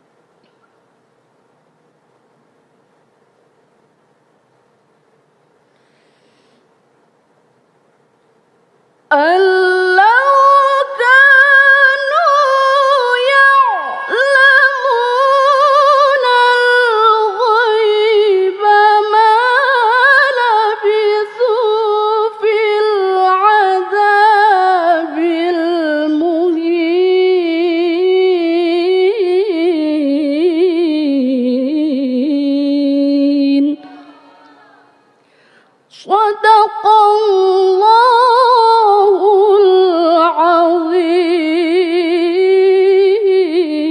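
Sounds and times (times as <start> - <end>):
woman reciting melodically: 9.1 - 35.2, 35.9 - 43.9.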